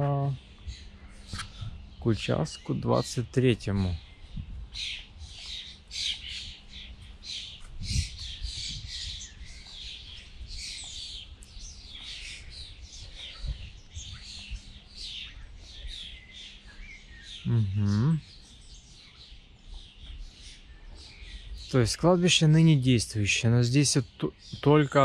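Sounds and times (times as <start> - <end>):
dull low thumps: 3.6 - 5.4.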